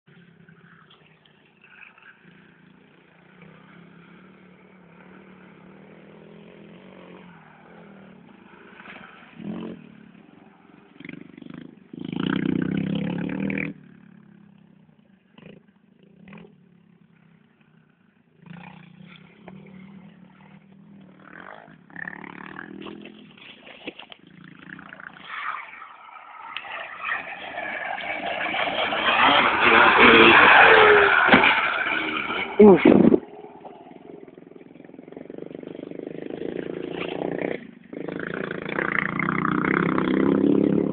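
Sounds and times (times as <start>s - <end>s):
dirt bike engine revving: 27.3s - 40.9s.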